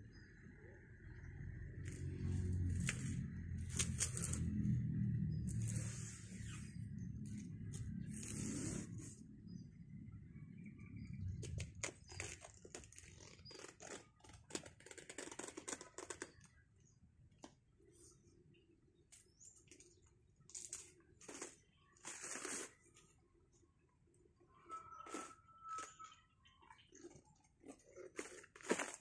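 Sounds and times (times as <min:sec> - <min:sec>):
dry plant sheath crackling: 0:01.8 - 0:04.7, 0:11.8 - 0:16.5.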